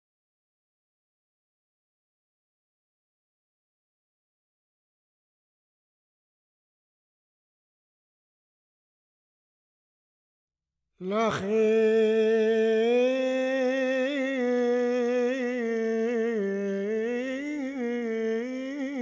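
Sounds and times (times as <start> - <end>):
person humming a long note: 11.0 - 19.0.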